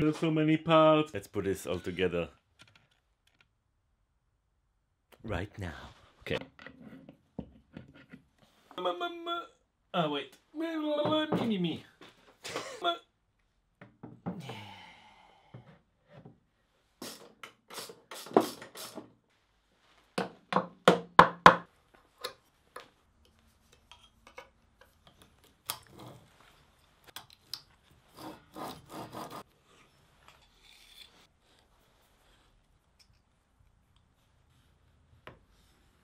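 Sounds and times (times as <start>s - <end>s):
metal parts scraping and clinking: 30.3s - 31.3s.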